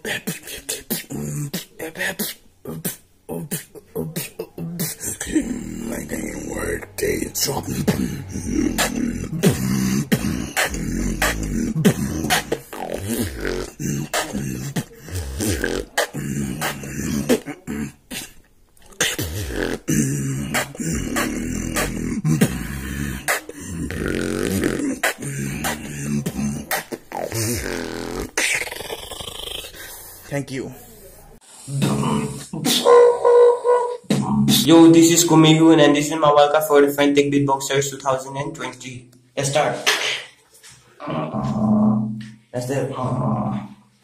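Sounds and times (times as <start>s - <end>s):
person beatboxing: 0.0s - 32.9s, 34.0s - 34.8s.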